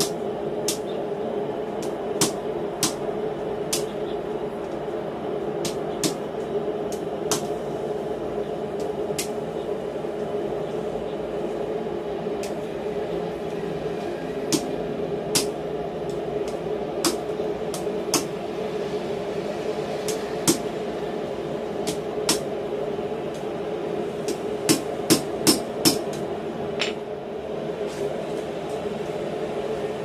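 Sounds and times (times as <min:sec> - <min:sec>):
steady drone: 0:00.0 - 0:30.0.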